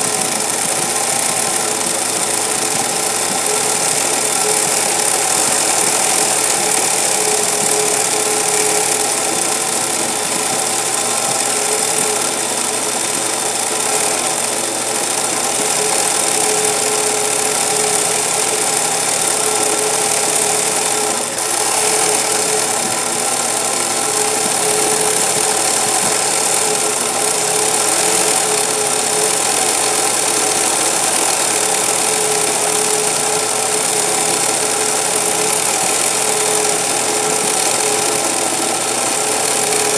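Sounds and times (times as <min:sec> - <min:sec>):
sewing machine running: 0:00.0 - 0:39.9.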